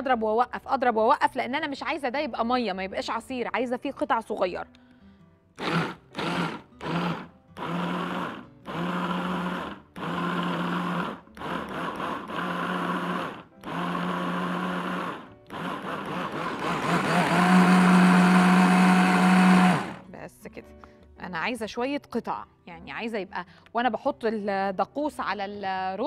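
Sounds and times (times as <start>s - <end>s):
electric blender running: 5.6s - 20.0s.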